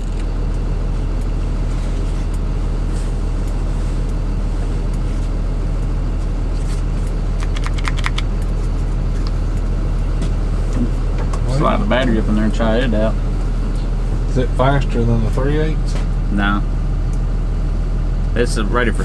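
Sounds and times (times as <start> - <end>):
low engine hum: 0.0 - 19.0
sharp clicks: 7.4 - 8.5.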